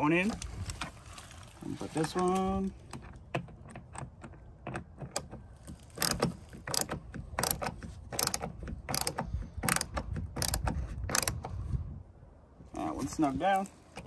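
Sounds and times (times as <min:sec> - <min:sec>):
hand screwdriver turning screw: 0:02.8 - 0:11.6.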